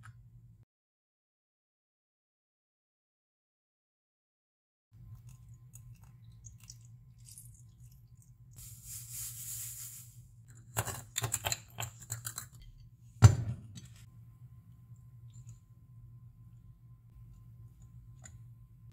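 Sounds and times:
sugar pouring into a glass: 6.3 - 10.2.

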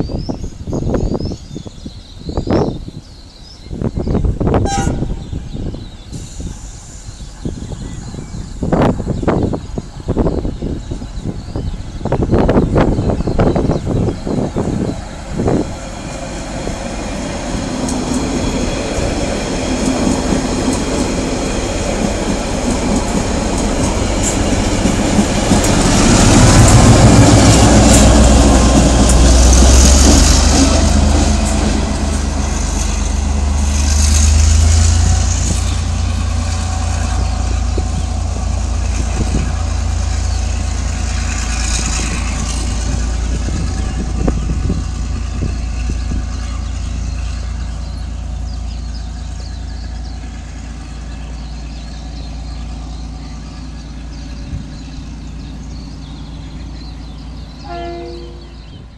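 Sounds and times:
diesel locomotive engine rumble: 0.0 - 58.9
diesel train rolling past: 0.0 - 58.9
train wheels clattering on rails: 13.4 - 57.6.

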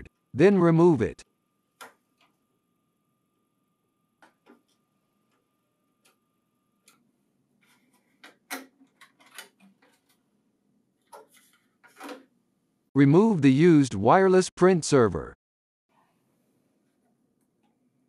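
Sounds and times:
plastic clicks and rattles: 8.2 - 10.2.

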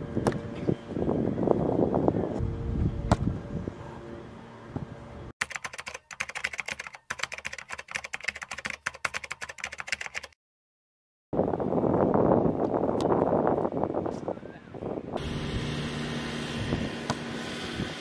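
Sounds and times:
wind noise on microphone: 0.0 - 4.0, 11.4 - 15.8, 16.5 - 18.0
rapid keyboard typing: 5.4 - 10.4.

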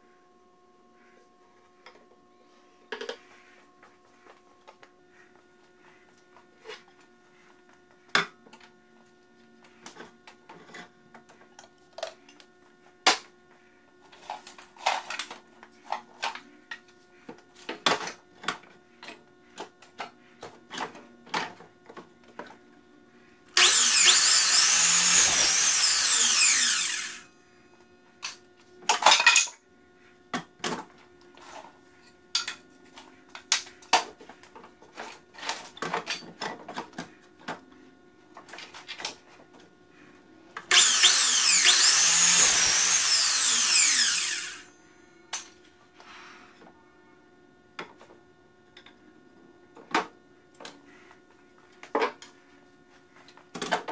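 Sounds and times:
miter saw cutting wood: 23.6 - 27.3, 40.7 - 44.7.

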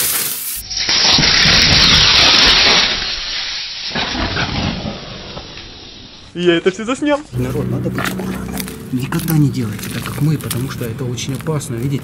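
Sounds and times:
battery venting loud hissing jet: 0.0 - 6.3.

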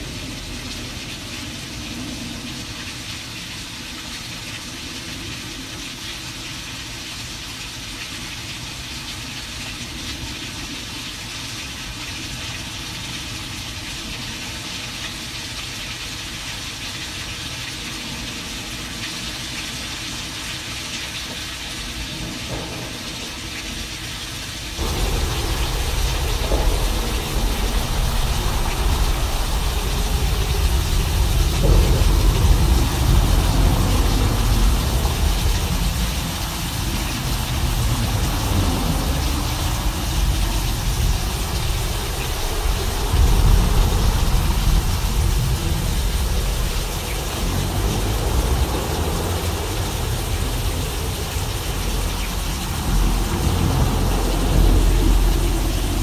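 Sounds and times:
rain-like hiss: 0.0 - 56.0
deep continuous rumble: 21.8 - 56.0.

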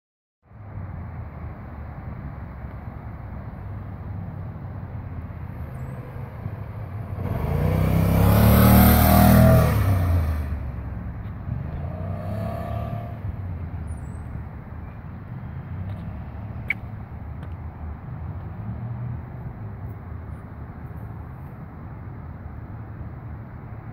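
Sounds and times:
scooter engine passing by: 5.6 - 10.7, 11.6 - 13.3.

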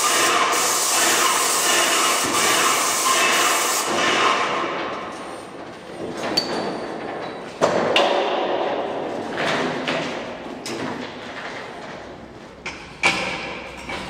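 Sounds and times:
hiss: 0.0 - 4.6.

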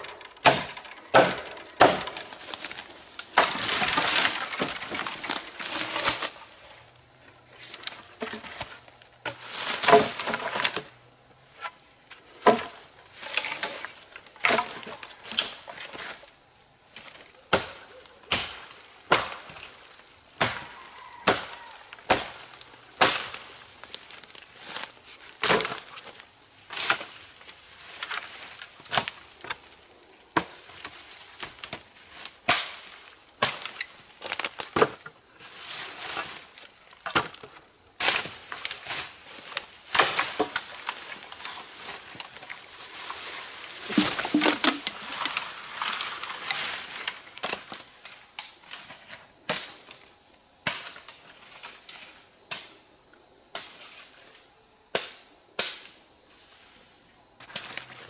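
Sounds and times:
leafy branches rustling: 0.0 - 50.1, 56.3 - 58.0
machete chopping wood: 0.4 - 2.2, 17.5 - 19.5, 20.4 - 22.4, 23.0 - 23.4, 43.9 - 44.9.

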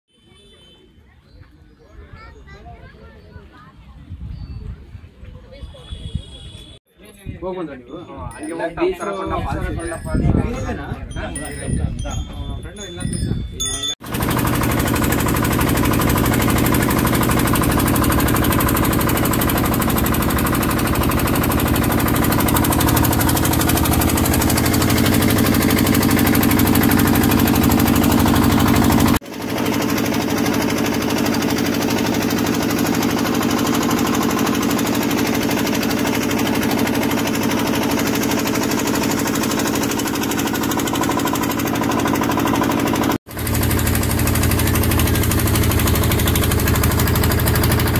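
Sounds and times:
boat engine droning: 14.0 - 47.9.

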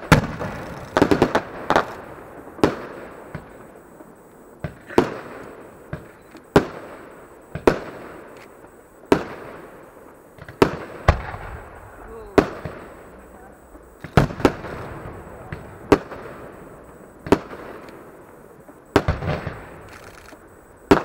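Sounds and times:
fireworks bursting with echo: 0.0 - 21.0.

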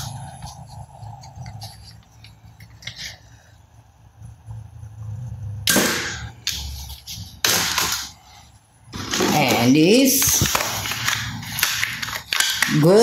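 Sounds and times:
toy gun bangs: 5.7 - 6.3.

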